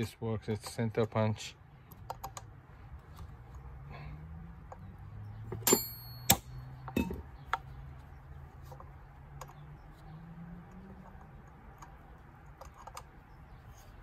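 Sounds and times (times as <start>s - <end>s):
hammer clinking on metal: 5.6s - 7.2s.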